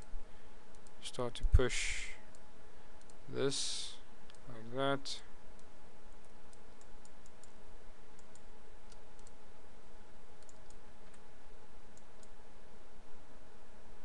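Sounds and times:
background hiss: 0.0s - 14.0s
faint hum: 0.0s - 14.0s
computer mouse clicks: 0.7s - 1.0s, 3.0s - 3.2s, 8.2s - 9.4s, 10.4s - 11.2s, 11.9s - 12.4s.

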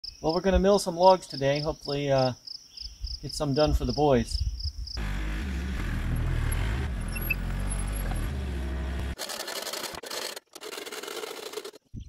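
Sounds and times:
excavator engine running: 5.0s - 11.8s.

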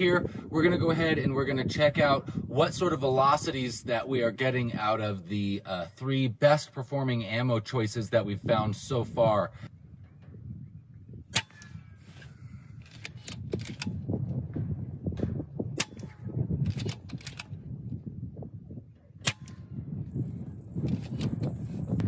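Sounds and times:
air rifle shots: 11.3s - 11.8s, 15.7s - 17.6s, 19.2s - 19.7s.

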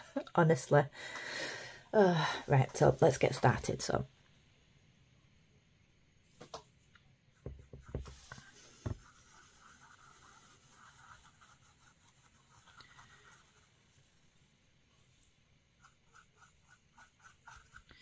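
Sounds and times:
soft knocks: 7.4s - 8.2s
brush scratching in mould: 7.7s - 14.1s, 15.7s - 18.0s.

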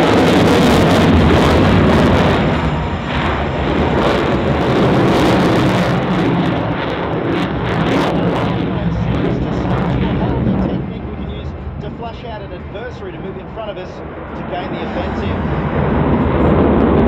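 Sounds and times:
jet engine noise overhead: 0.0s - 17.0s.

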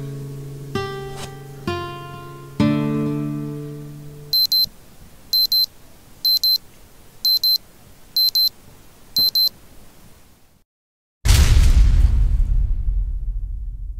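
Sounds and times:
high double beeps: 4.4s - 4.7s, 5.4s - 5.7s, 6.3s - 6.6s, 7.3s - 7.6s, 8.2s - 8.5s, 9.2s - 9.5s.

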